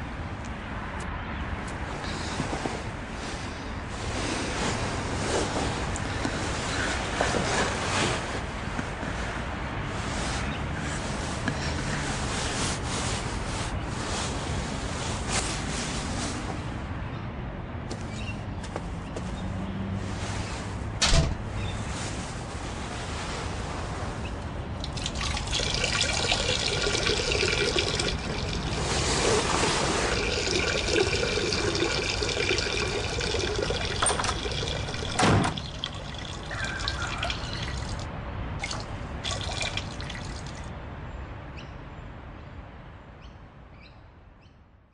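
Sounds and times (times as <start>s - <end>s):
urine splashing into toilet bowl: 24.8s - 38.0s, 38.6s - 40.6s.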